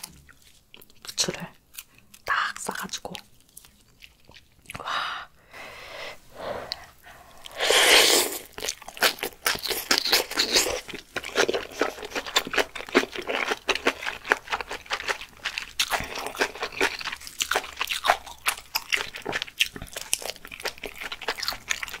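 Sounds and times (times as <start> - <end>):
chewing with wet mouth clicks: 0.0 - 4.9, 8.4 - 22.0
slurping noodles: 7.4 - 8.6.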